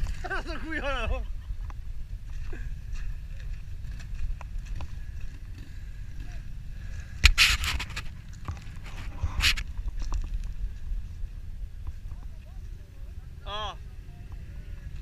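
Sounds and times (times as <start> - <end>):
low rumble: 0.0 - 15.0
quad engine running: 0.0 - 15.0
loud rustling scrapes: 7.2 - 9.7.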